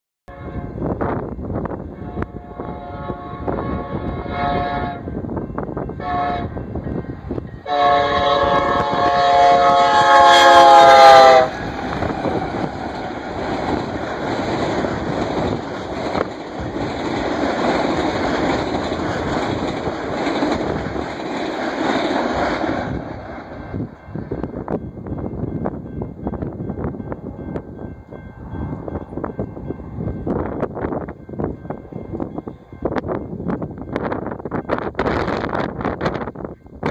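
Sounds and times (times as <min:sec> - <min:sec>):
locomotive air horn blasts: 0:00.3 - 0:00.9, 0:01.9 - 0:05.1, 0:06.0 - 0:06.6, 0:07.6 - 0:11.6
train rumbling on rails: 0:00.3 - 0:36.9.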